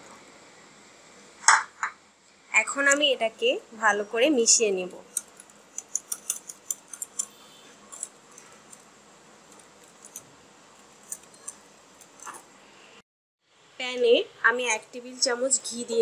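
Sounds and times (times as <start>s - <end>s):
whisk clicking against bowl: 5.1s - 8.8s.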